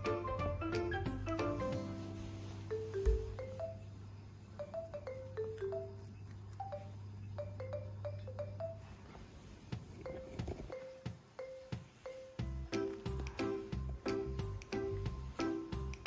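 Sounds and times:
mallet percussion melody: 6.7s - 8.8s.

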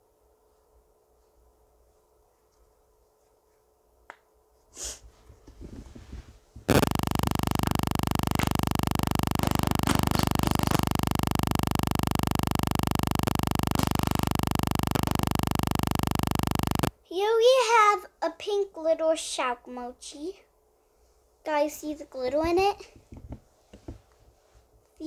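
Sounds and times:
clicks and pops: 6.7s - 16.9s
loud steady buzz: 6.7s - 16.9s.

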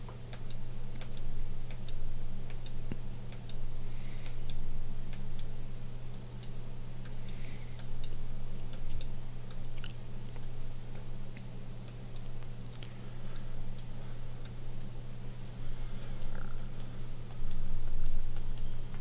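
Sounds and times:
low electrical hum: 0.0s - 19.0s
faint high chirps: 18.4s - 19.0s.

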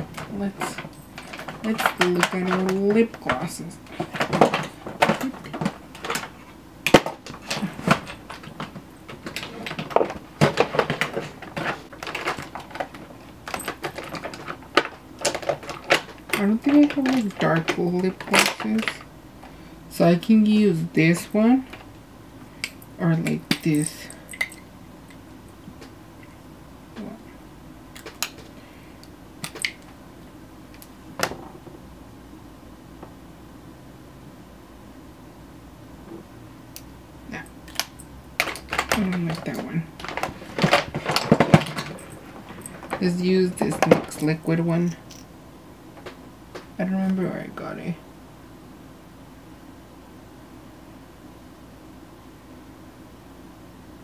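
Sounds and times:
makeup clicks and knocks: 0.0s - 19.1s, 28.0s - 28.5s, 29.4s - 30.0s, 37.7s - 44.4s.

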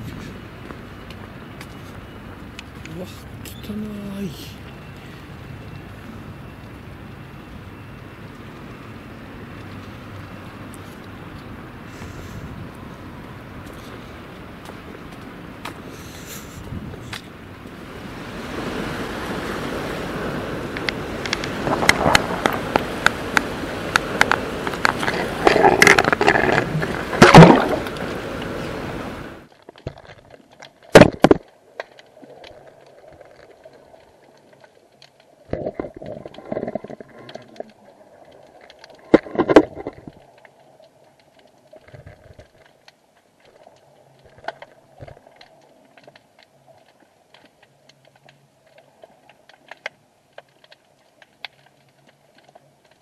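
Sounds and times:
wind buffeting microphone: 12.0s - 29.4s.

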